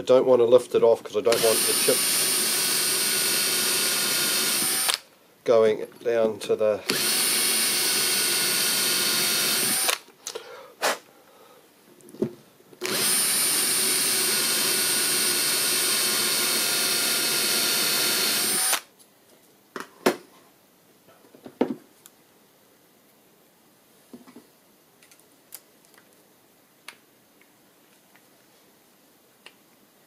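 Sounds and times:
cordless drill drilling metal: 0:01.3 - 0:05.0, 0:06.8 - 0:10.0, 0:12.8 - 0:18.9.

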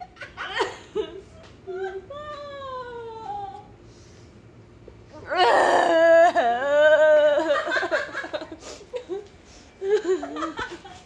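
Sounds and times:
woman wailing: 0:01.7 - 0:03.7, 0:05.2 - 0:08.0.

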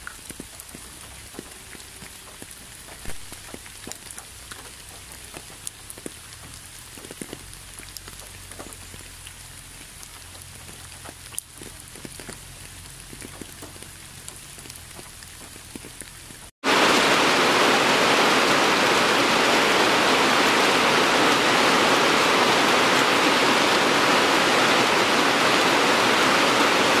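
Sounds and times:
heavy downpour hissing: 0:00.0 - 0:27.0
light rain: 0:00.0 - 0:27.0.

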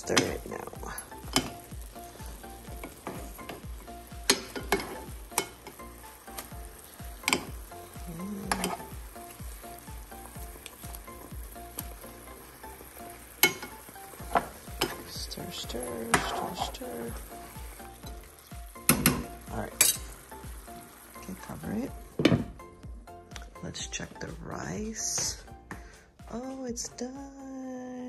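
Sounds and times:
food boiling and sizzling in pan: 0:00.0 - 0:22.8
metal utensil clinking against pan: 0:19.8 - 0:20.1.

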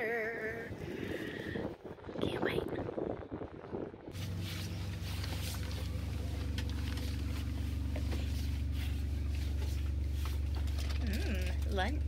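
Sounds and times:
diesel engine drone: 0:03.4 - 0:12.0.

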